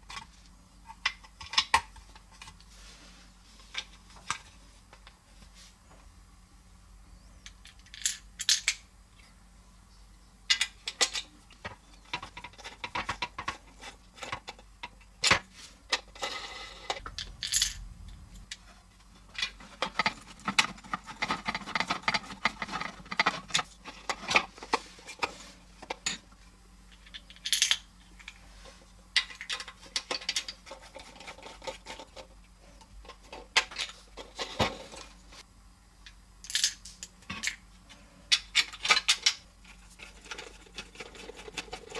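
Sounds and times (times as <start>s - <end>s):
plastic parts clicking and clattering: 0.0s - 2.6s, 7.4s - 8.8s, 10.5s - 17.8s, 19.3s - 26.2s, 29.2s - 35.2s, 38.3s - 41.9s.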